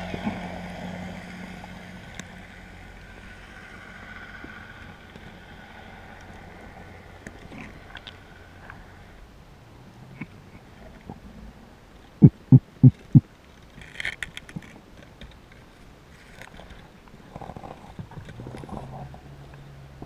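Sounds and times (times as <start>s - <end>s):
low steady hum: 0.0s - 20.0s
heavy low underwater thumps: 12.2s - 13.3s.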